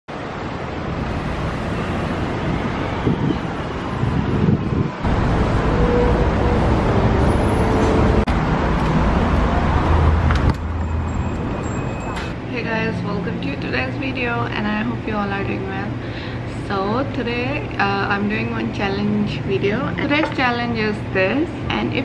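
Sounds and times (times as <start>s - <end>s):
passing cars rumbling: 0.1s - 14.6s.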